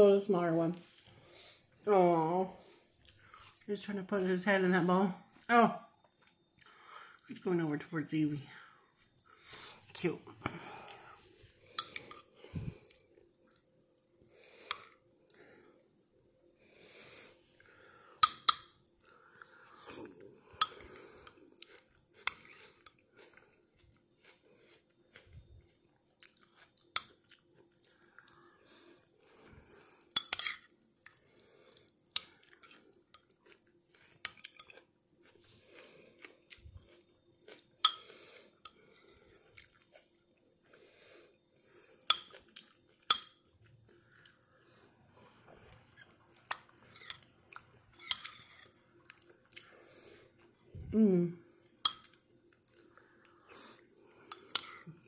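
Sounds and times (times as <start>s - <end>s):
chewing: 10.8s - 15.0s, 18.8s - 28.5s, 29.2s - 50.7s, 51.7s - 55.0s
spoon clinking against bowl: 43.1s - 43.4s.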